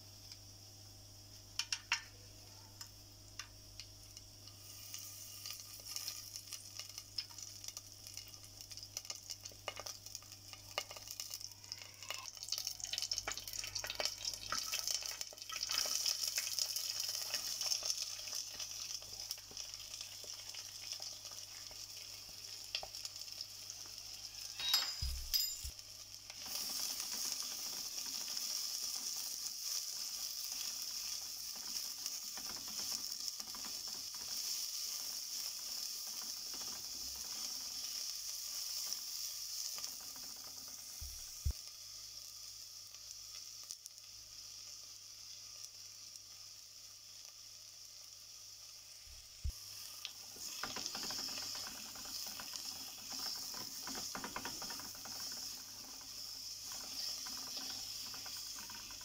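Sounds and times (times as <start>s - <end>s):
oil sizzling in clay pot: 0.0s - 59.0s.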